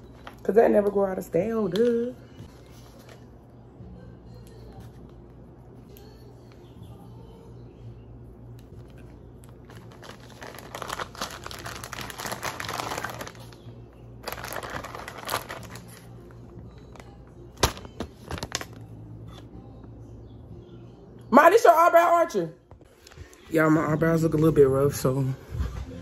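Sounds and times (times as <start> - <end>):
plastic bag crinkling: 9.4 - 16.2.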